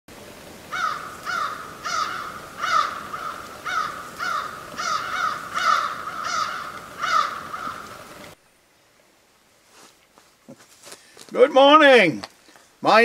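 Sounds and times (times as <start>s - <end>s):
crow cawing: 0.7s - 8.1s.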